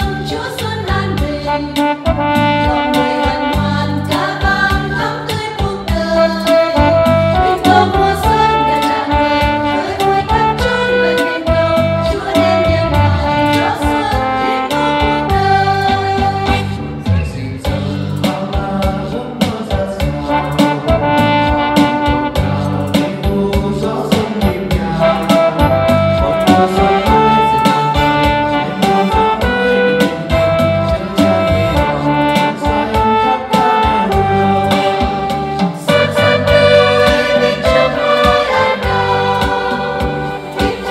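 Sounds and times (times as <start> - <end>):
women's choir singing a hymn: 0.0 - 1.6, 2.7 - 16.5, 36.2 - 40.9
electronic keyboard with steady beat: 0.0 - 17.0, 17.7 - 40.9.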